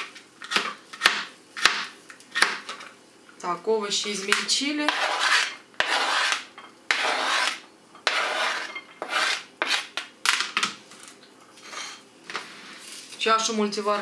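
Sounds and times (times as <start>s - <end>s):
knife scraping on cutting board: 4.9s - 10.0s, 11.6s - 12.9s.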